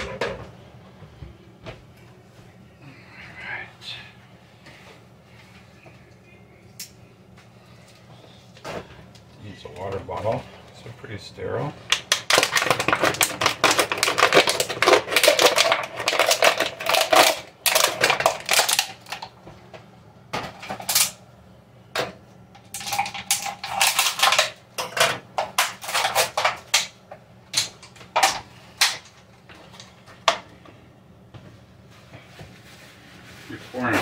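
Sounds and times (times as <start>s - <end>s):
plastic bottle crinkling: 11.9s - 19.3s.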